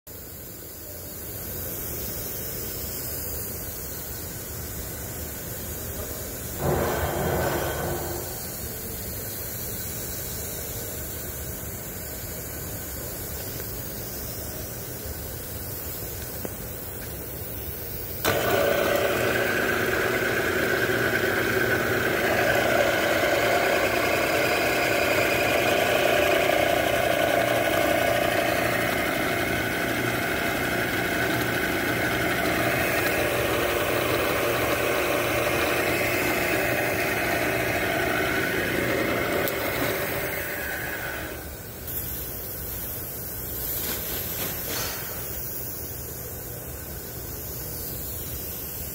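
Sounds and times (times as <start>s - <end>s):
milling machine motor whining: 6.6s - 8.6s, 18.2s - 41.5s
machine running down: 6.6s - 8.8s, 18.2s - 41.6s.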